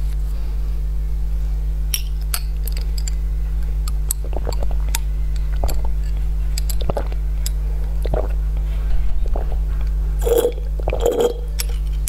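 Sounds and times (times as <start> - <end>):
low electrical hum: 0.0 - 12.0
glass bottle clinking: 10.2 - 11.7.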